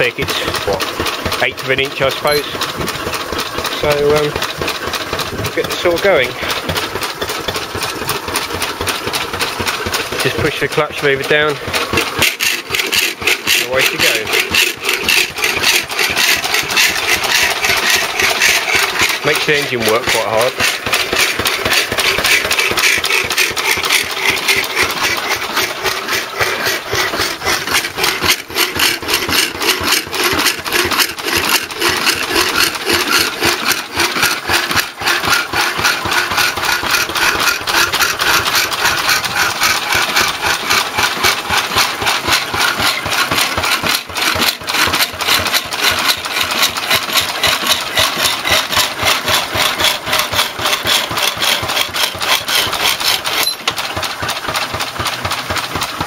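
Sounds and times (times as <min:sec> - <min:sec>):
hacksaw cutting metal: 0:00.0 - 0:56.0
stationary engine running: 0:00.0 - 0:56.0.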